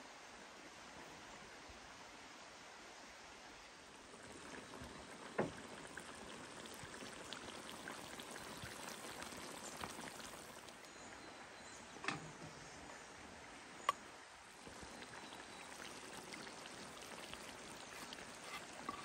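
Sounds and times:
stew bubbling: 0:04.0 - 0:10.9, 0:13.8 - 0:19.0.

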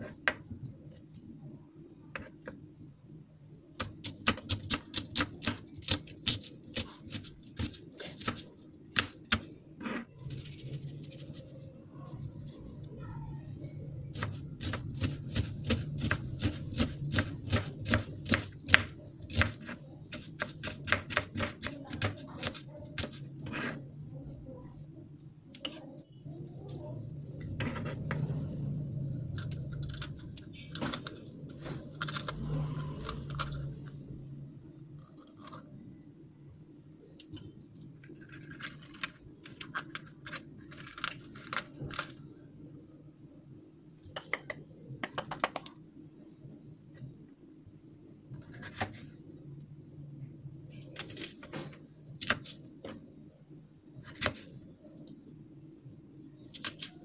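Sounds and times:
knife chopping vegetables: 0:03.8 - 0:09.4, 0:14.1 - 0:23.7
low hum: 0:23.2 - 0:44.0.

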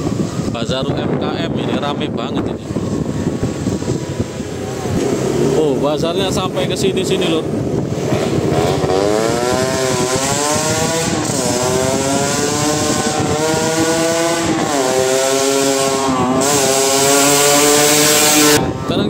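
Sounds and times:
motorcycle engine revving: 0:02.5 - 0:18.8.

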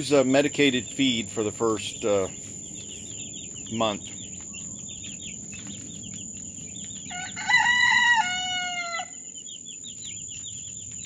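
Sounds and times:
chicks peeping: 0:00.0 - 0:11.0
rooster crowing: 0:07.0 - 0:09.2.

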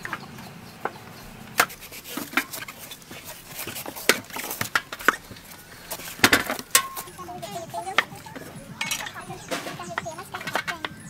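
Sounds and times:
knife scraping melon rind: 0:01.6 - 0:06.2.

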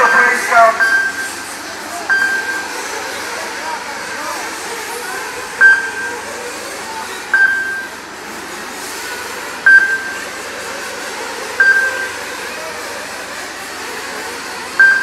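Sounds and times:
loud single-pitch tones: 0:00.0 - 0:03.0, 0:05.5 - 0:06.4, 0:07.3 - 0:08.1, 0:09.7 - 0:10.4, 0:11.6 - 0:12.4, 0:14.8 - 0:15.0
small engines buzzing: 0:00.0 - 0:15.0.

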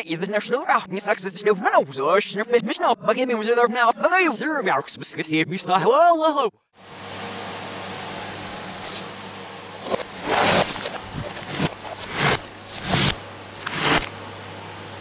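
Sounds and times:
steady low hum: 0:06.8 - 0:15.0
reversed scrapes and squishes: 0:09.8 - 0:14.2.

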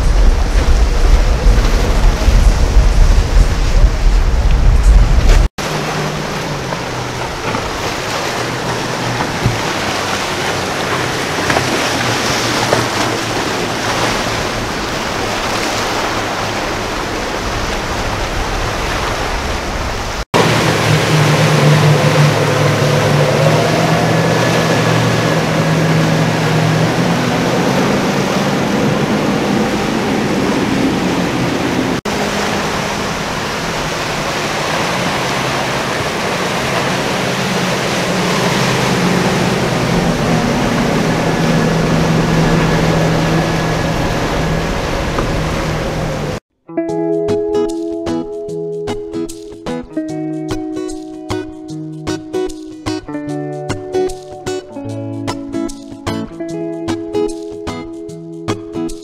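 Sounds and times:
powerboat engines droning: 0:00.0 - 0:46.4
rushing water and surf: 0:00.0 - 0:59.0.

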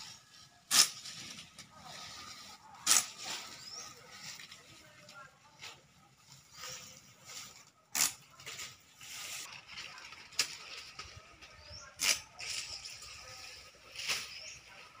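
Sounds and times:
leaves rustling: 0:00.0 - 0:15.0
machete chopping fronds: 0:00.7 - 0:01.7, 0:02.8 - 0:03.7.

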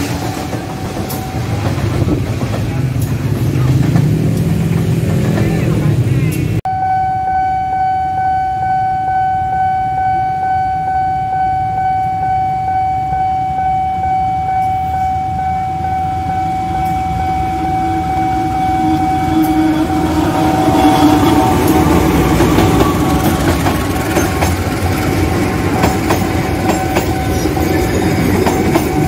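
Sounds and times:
diesel locomotive rumble: 0:00.0 - 0:06.6, 0:14.4 - 0:29.0
level crossing warning bell: 0:06.7 - 0:23.4, 0:25.1 - 0:29.0.

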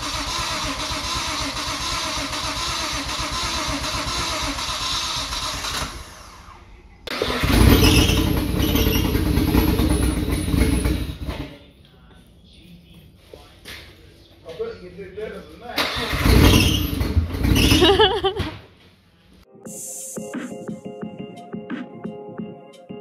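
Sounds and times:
car engine running: 0:07.2 - 0:11.6, 0:16.1 - 0:18.2.

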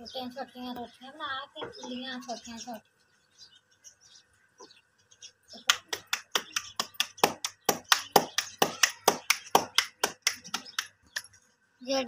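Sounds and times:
hands slapping dough: 0:05.6 - 0:11.4.

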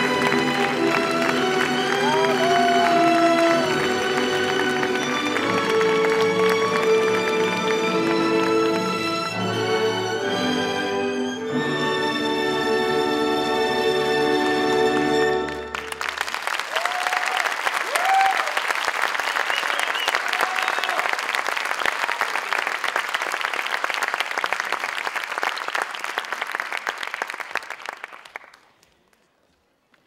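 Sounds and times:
audience applause: 0:00.0 - 0:09.9, 0:14.5 - 0:29.3
music: 0:00.0 - 0:16.0
audience cheers: 0:00.1 - 0:05.1, 0:16.5 - 0:22.6.

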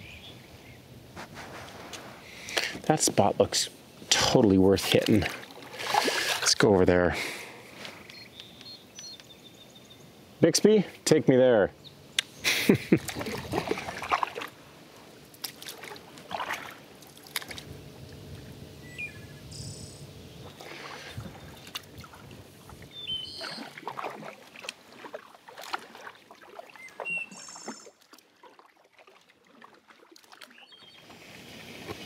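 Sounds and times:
water lapping and splashing: 0:01.2 - 0:08.2, 0:12.5 - 0:18.6, 0:20.4 - 0:32.0.

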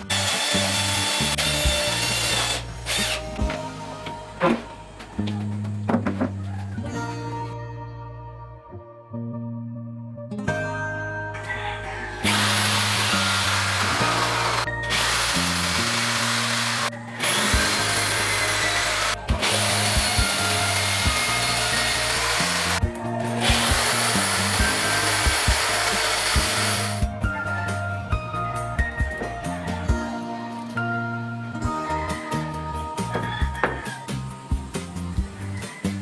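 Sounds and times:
electric drill boring into wall: 0:00.0 - 0:03.4, 0:12.2 - 0:22.8, 0:23.4 - 0:27.0.

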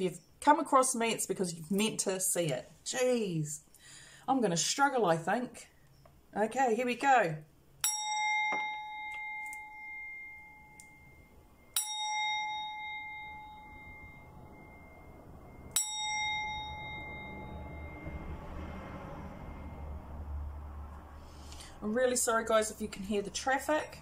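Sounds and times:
low traffic rumble: 0:07.5 - 0:24.0
singing bowl struck with mallet: 0:07.8 - 0:18.8.

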